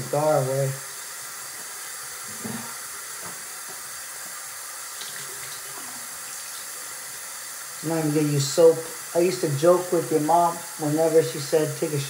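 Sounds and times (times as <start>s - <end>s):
tap water running into sink: 0.0s - 11.4s.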